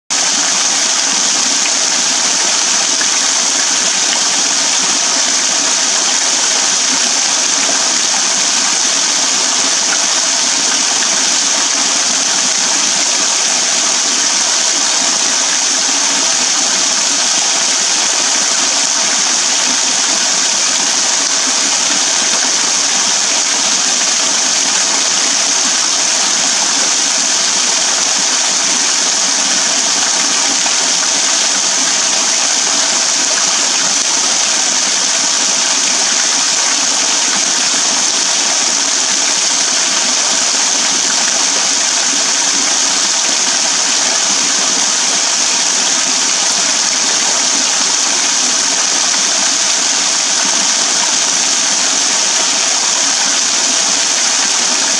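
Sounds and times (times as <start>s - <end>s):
small waterfall splashing: 0.1s - 54.9s.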